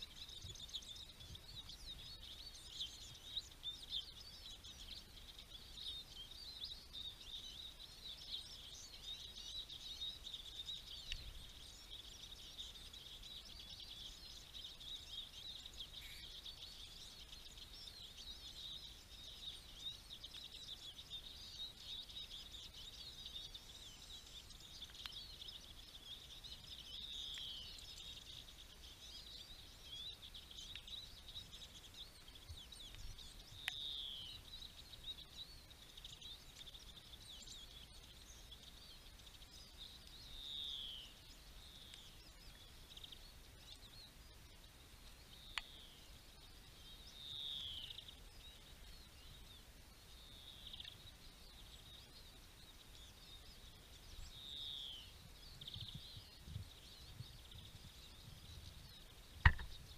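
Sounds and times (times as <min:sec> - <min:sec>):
songbirds twittering: 0:00.0 - 0:59.9.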